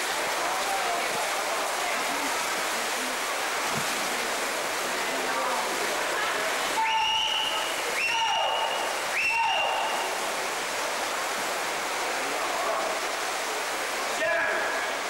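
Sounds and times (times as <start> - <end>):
water splashing: 0.0 - 15.0
short high whistle tones: 6.8 - 10.1.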